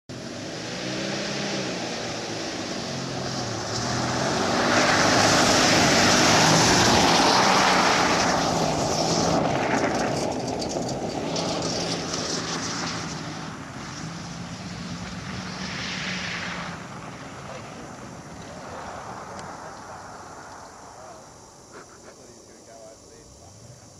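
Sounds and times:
car engine revving hard: 0:00.1 - 0:21.1
tyres spraying dirt and gravel: 0:00.5 - 0:23.9.

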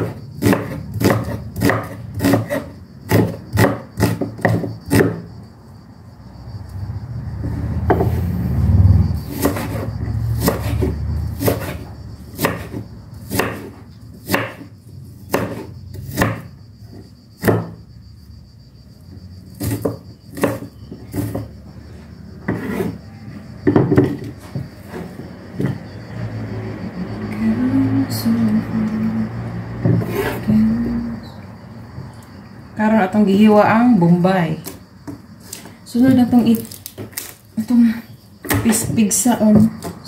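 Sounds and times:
knife chopping on cutting board: 0:00.0 - 0:05.2, 0:12.4 - 0:14.6, 0:15.3 - 0:16.4, 0:17.4 - 0:17.7, 0:19.6 - 0:21.4.

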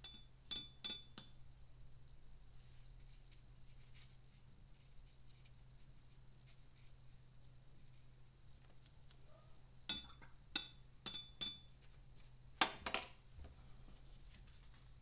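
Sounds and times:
paintbrush clinking on container: 0:00.0 - 0:01.4, 0:09.9 - 0:11.8.

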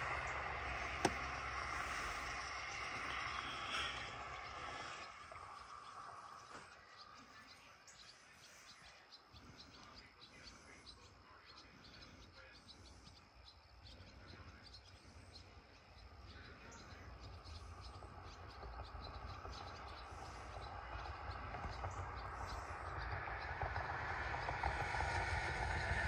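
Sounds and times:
low rumble: 0:00.0 - 0:07.7, 0:14.0 - 0:26.0.

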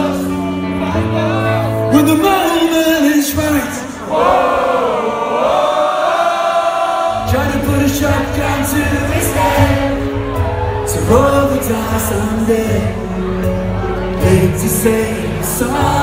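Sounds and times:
rock band playing: 0:00.0 - 0:04.0, 0:07.2 - 0:16.0
person singing: 0:07.1 - 0:16.0.

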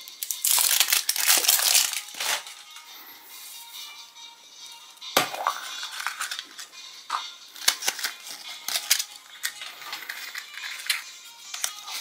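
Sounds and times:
plastic wrappers crinkling and clicking: 0:00.0 - 0:02.9, 0:05.6 - 0:12.0.

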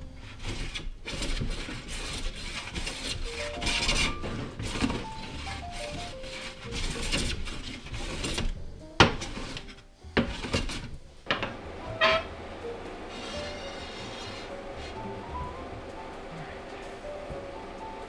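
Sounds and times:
soft background music: 0:00.0 - 0:18.0
hand plane shaving wood: 0:00.2 - 0:08.6, 0:13.0 - 0:15.2
tool knocking on wood: 0:11.3 - 0:12.2.

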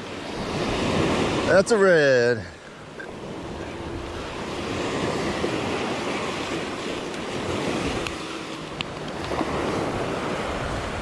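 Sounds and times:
surf breaking on a beach: 0:00.0 - 0:11.0
wind on microphone: 0:03.0 - 0:11.0.

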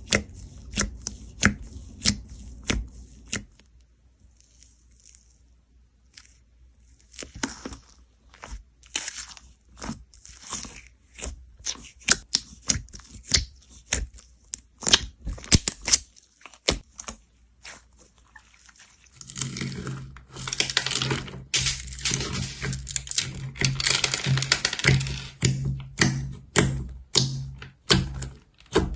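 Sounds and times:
crunchy slime crackling: 0:04.2 - 0:25.5
slime popping and squelching: 0:06.0 - 0:28.9.

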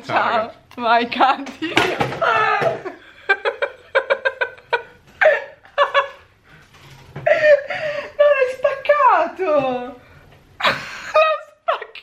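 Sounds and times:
woman laughing: 0:02.4 - 0:06.2, 0:07.2 - 0:08.6, 0:10.6 - 0:12.0.

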